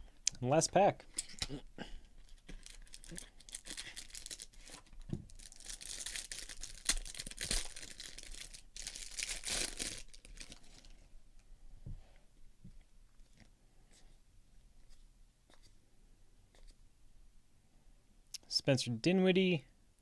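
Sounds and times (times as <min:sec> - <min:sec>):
cellophane wrapper crinkling: 0:02.2 - 0:11.0.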